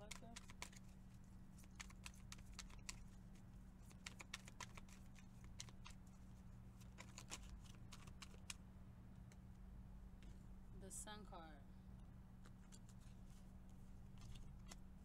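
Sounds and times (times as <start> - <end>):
cards being shuffled: 0.0 - 8.6, 12.4 - 14.9
steady low hum: 0.0 - 15.0.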